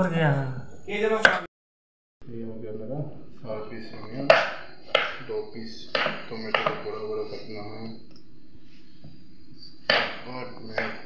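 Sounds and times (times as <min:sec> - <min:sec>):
knife knocking on chopping board: 0:05.9 - 0:06.8, 0:09.9 - 0:10.2.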